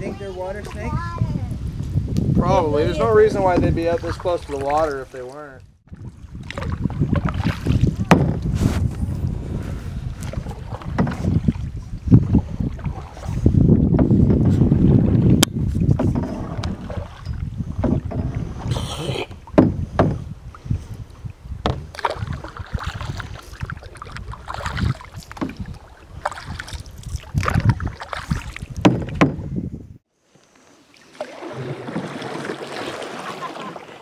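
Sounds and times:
wind rumble on microphone: 0:00.0 - 0:04.8, 0:05.5 - 0:30.0
paddle splashes: 0:03.1 - 0:20.8, 0:21.5 - 0:29.4, 0:30.3 - 0:34.0
paddles knocking against canoe hull: 0:03.3 - 0:04.9, 0:05.9 - 0:08.5, 0:10.2 - 0:18.7, 0:19.4 - 0:20.3, 0:21.6 - 0:29.5.

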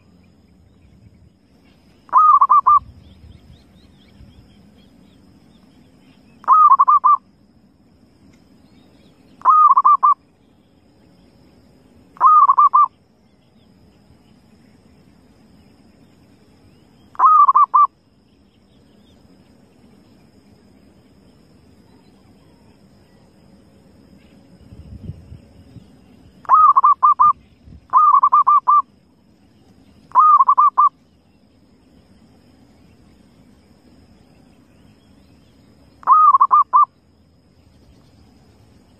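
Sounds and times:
dove cooing: 0:02.1 - 0:02.8, 0:06.4 - 0:07.2, 0:09.4 - 0:10.2, 0:12.2 - 0:12.9, 0:17.2 - 0:17.9, 0:26.4 - 0:28.8, 0:30.1 - 0:30.9, 0:36.0 - 0:36.9.

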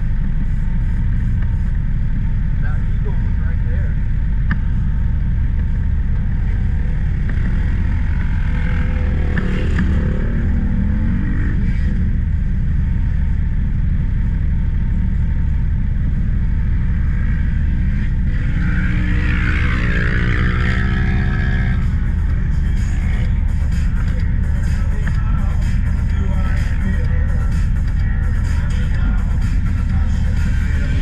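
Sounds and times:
engine rumbling: 0:00.0 - 0:31.0.

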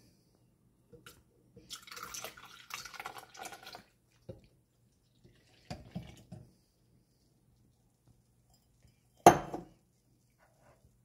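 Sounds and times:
milk pouring and splashing: 0:01.0 - 0:06.6.

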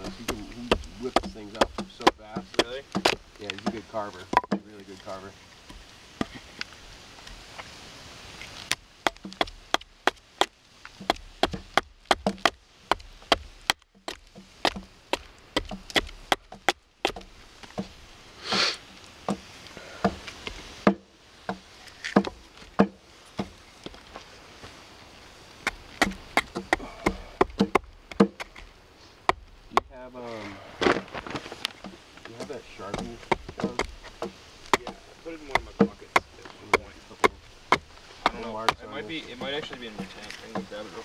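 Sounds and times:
hatchet chopping wood: 0:00.0 - 0:04.8, 0:08.6 - 0:18.0, 0:19.2 - 0:23.6, 0:25.6 - 0:30.0, 0:31.8 - 0:40.7
short rasping hiss: 0:18.3 - 0:19.6.

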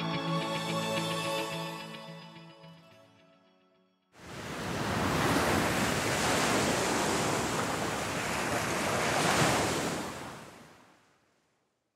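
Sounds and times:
ocean waves rushing: 0:04.2 - 0:10.8.

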